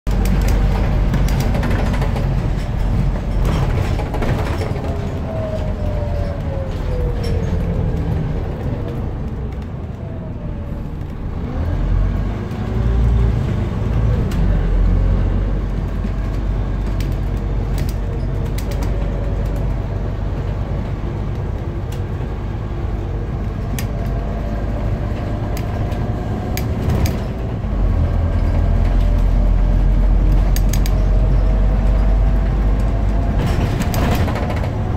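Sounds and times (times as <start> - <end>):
bodywork rattles and clicks: 0.1 - 9.7, 15.7 - 20.0, 23.4 - 34.9
bus engine drone and whine: 0.1 - 34.9.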